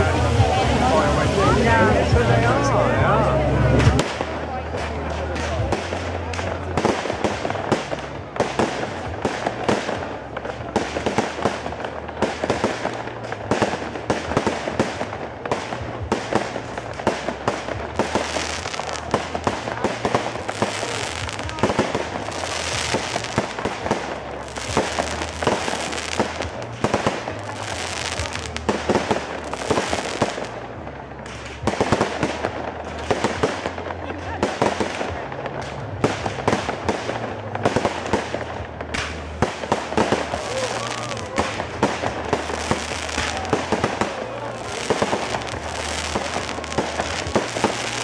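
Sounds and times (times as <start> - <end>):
fireworks bangs and crackling: 0.0 - 48.0.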